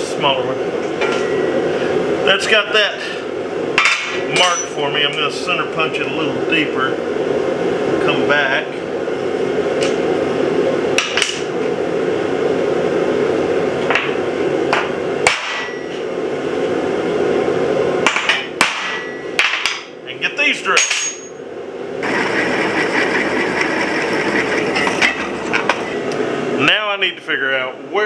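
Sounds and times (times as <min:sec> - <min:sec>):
hammer striking metal punch: 0:03.8 - 0:04.8, 0:14.7 - 0:15.8, 0:18.1 - 0:19.9, 0:20.8 - 0:21.3
drill press whirring: 0:22.0 - 0:26.2.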